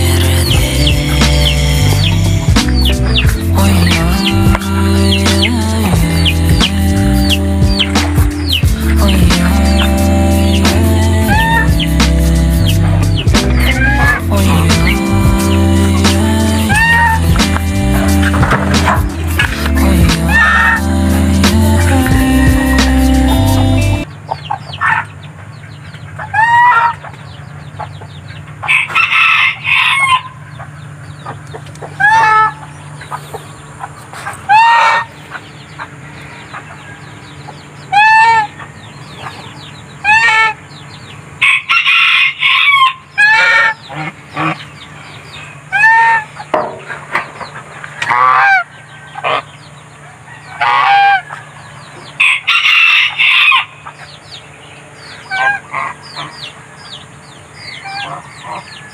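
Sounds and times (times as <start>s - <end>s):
geese honking: 0.0s - 25.2s, 26.0s - 27.2s, 28.6s - 58.9s
chickens clucking: 0.0s - 58.9s
rooster crowing: 21.9s - 23.4s, 28.7s - 30.4s, 41.4s - 43.8s, 48.1s - 53.9s.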